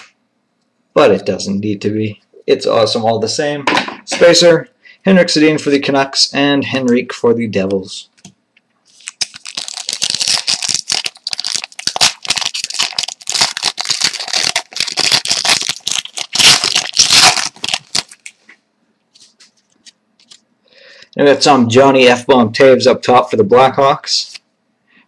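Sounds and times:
foil wrapper crinkling and tearing: 8.9 - 18.4.

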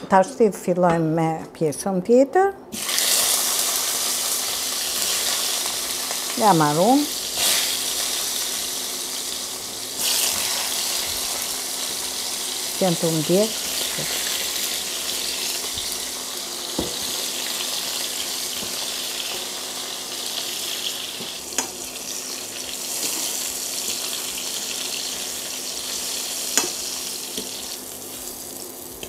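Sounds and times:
slices frying in oil: 2.8 - 29.0.

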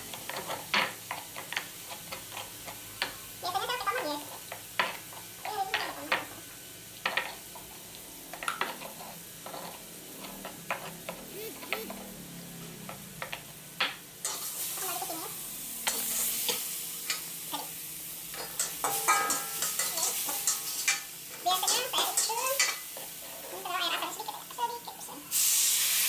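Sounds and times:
food sizzling in oil: 0.0 - 26.0
metal spatula scraping wok: 8.4 - 13.0, 15.8 - 17.3, 18.3 - 24.1.

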